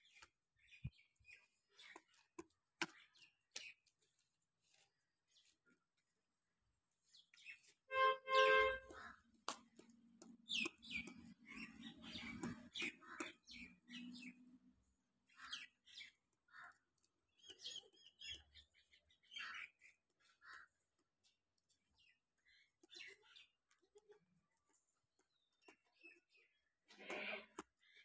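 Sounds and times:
small birds chirping: 0.0s - 6.2s, 6.8s - 28.0s.

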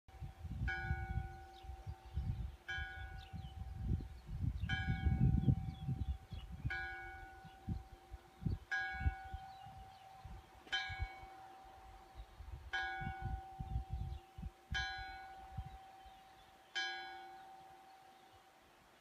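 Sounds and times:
wind rumbling on microphone: 0.1s - 16.4s.

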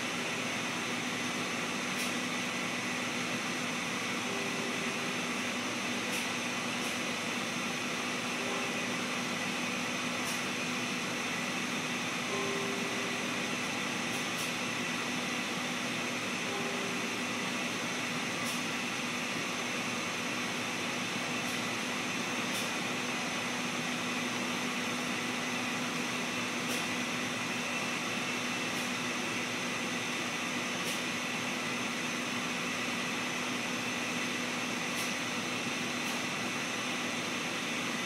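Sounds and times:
industrial machinery hum and hiss: 0.0s - 38.0s.

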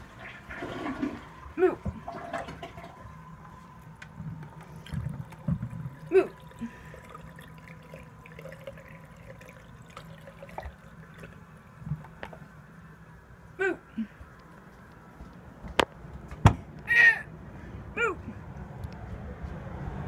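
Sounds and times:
toilet tank refilling: 0.0s - 13.2s.

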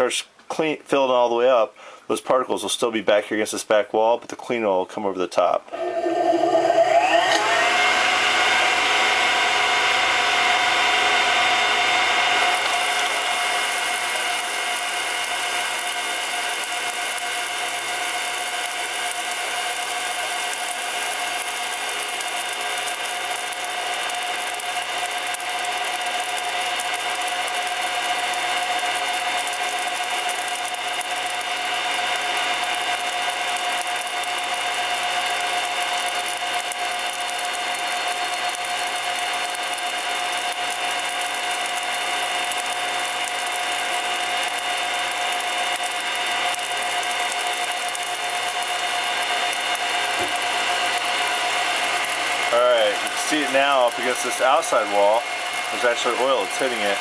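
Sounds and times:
centrifuge motor whine: 5.7s - 24.7s.

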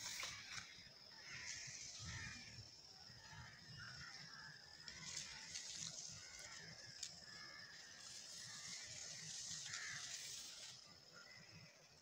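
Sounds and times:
soft hiss: 4.9s - 11.3s.

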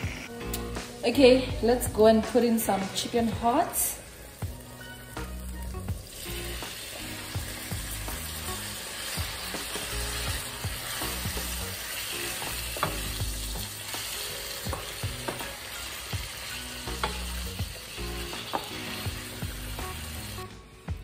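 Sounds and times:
meat sizzling in hot oil: 3.8s - 20.5s
wooden spoon knocking on pan: 12.4s - 13.3s, 14.6s - 15.5s, 17.0s - 17.2s, 18.4s - 19.2s.

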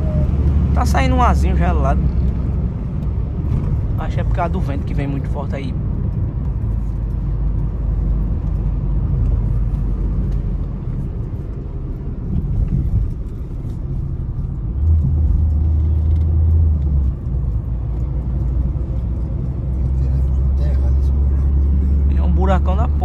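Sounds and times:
road and engine rumble in car: 0.0s - 23.0s
deep low hum: 5.7s - 22.2s.

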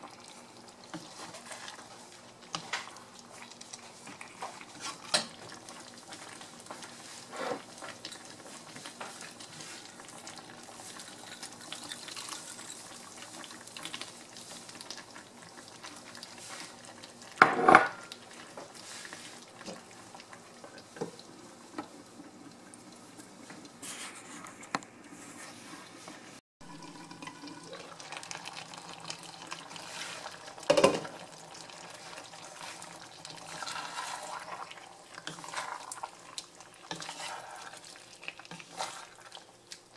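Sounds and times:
stew simmering: 0.0s - 39.9s
wooden spatula scraping a pan: 4.0s - 5.4s, 6.0s - 10.0s, 29.8s - 30.4s, 31.9s - 36.0s, 36.8s - 39.4s.

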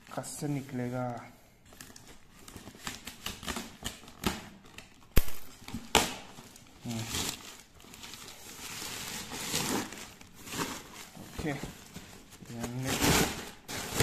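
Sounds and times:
plastic bag rustling: 3.7s - 14.0s.

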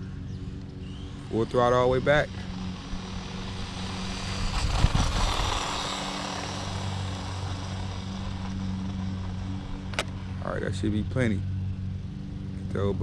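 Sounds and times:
low hum: 0.0s - 13.0s
toy truck electric motor whine: 0.4s - 10.4s.

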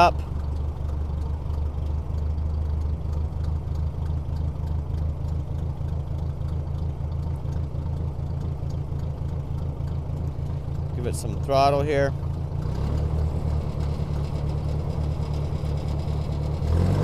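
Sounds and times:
tractor engine idling: 0.0s - 16.8s.

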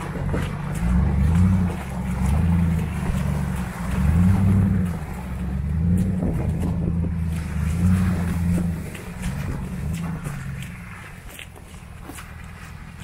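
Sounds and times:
pickup truck engine rumbling: 0.0s - 13.0s.

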